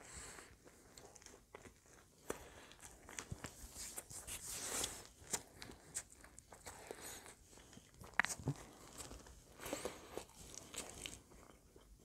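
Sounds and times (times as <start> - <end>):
wet mouth sounds of eating: 4.8 - 12.0.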